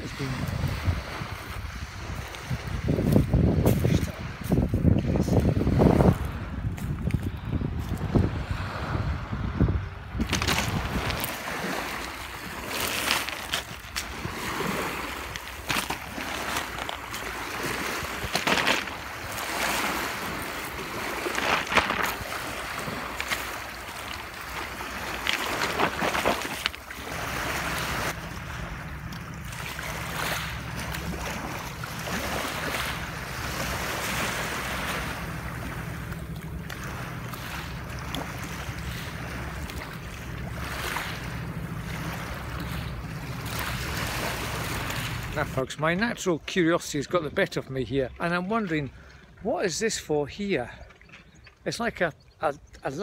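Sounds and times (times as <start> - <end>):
waves on pebble shore: 0.0 - 7.2, 7.8 - 45.7
wind on microphone: 0.0 - 12.6.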